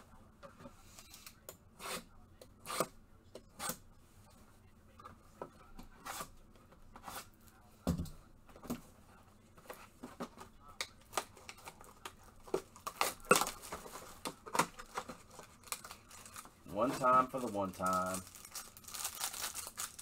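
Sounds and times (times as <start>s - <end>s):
foil packs crinkling and ripping: 12.7s - 20.0s.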